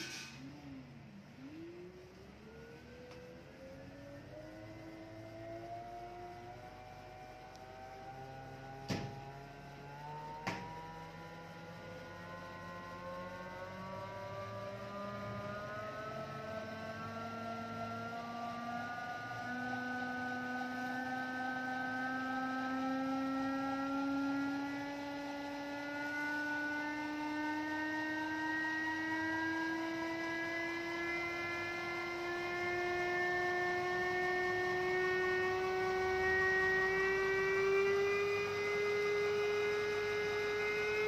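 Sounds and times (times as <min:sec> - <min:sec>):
electric motor whining: 0:01.4 - 0:41.0.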